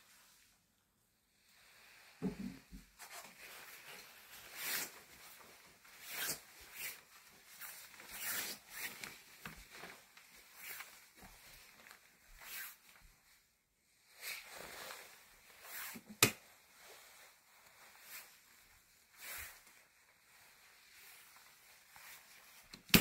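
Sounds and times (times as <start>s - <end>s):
clothing rustling: 0.0s - 23.0s
footsteps shuffling on floor: 2.2s - 13.6s.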